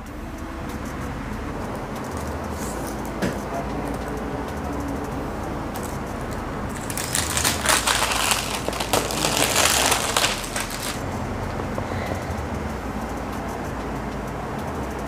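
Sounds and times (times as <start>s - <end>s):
low background hum: 0.0s - 15.0s
plastic wrap crinkling: 6.7s - 11.0s.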